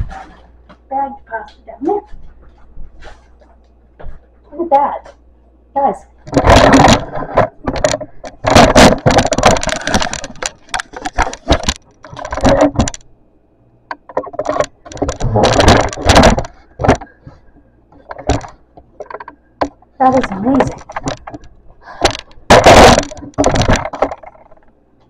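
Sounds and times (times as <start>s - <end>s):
knocking rattling and scraping: 6.2s - 13.1s, 13.9s - 24.8s.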